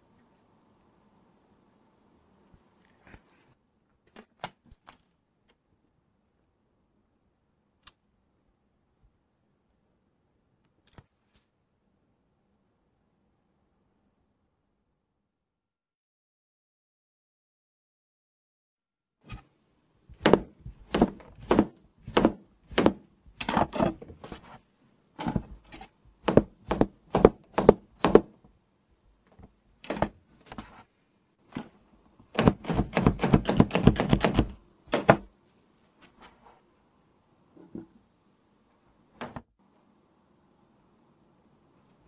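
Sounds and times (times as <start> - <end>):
knife chopping on screen: 20.1 - 24.6, 25.2 - 28.4, 32.3 - 35.3.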